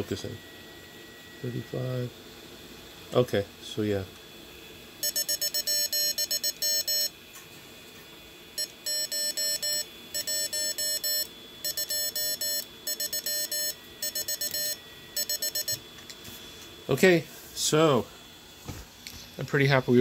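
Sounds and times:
morse code beeping: 0:05.0 - 0:07.1, 0:08.6 - 0:15.8.

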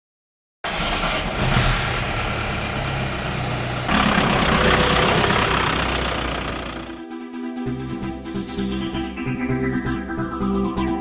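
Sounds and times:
vehicle engine running: 0:01.2 - 0:07.2
driving noise rush: 0:03.9 - 0:07.2.

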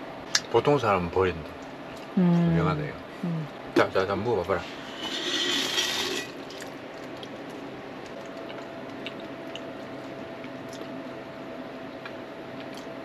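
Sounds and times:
person chewing: 0:08.1 - 0:11.0, 0:12.0 - 0:12.9.

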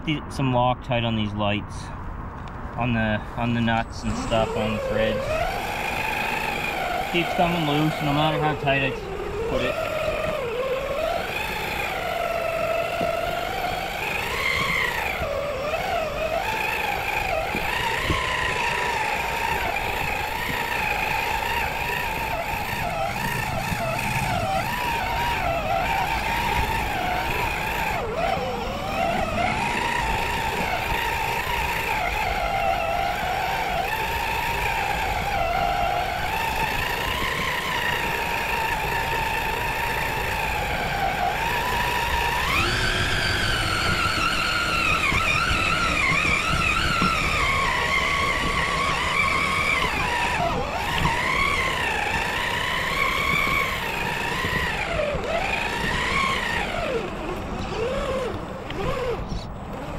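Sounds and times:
electric motor and gears whining: 0:00.0 - 0:59.9.

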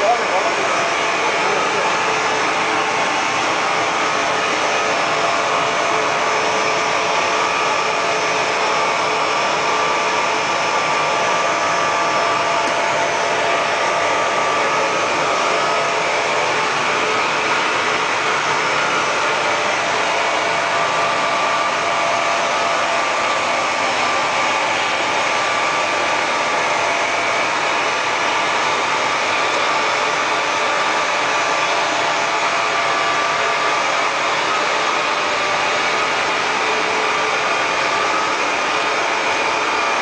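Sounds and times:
extrusion machine running: 0:00.0 - 0:40.0
loud rush of blower air: 0:00.0 - 0:40.0.

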